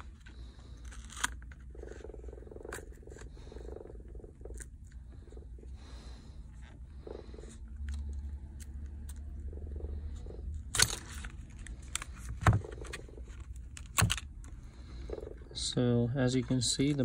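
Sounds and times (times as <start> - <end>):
plastic scraping and crinkling: 16.3 - 17.0.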